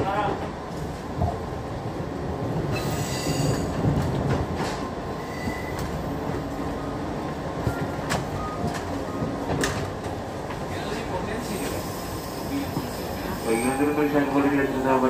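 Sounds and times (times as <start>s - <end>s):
train wheels rumbling on rails: 0.0s - 15.0s
high wheel squeals: 5.2s - 5.9s, 11.8s - 14.3s.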